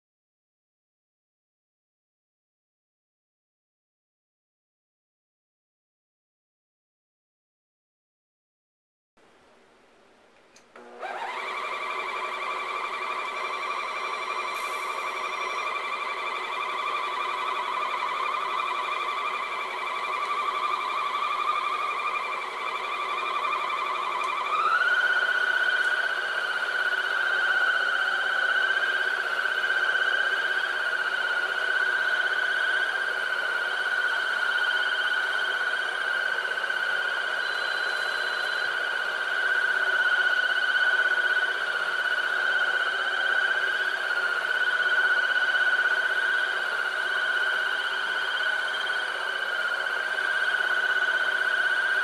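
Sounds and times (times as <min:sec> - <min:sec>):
floor scrubber motor whine: 0:10.8 - 0:52.0.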